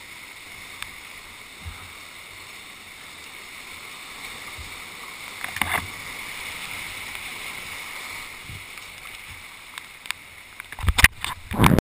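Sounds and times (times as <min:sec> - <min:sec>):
whitewater rushing: 0:00.0 - 0:11.8.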